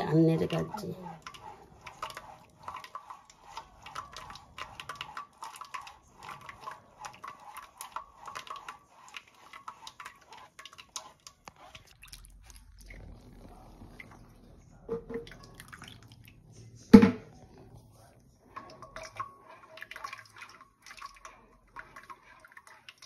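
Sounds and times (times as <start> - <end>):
spatula scraping mesh sieve: 0.0 - 12.0.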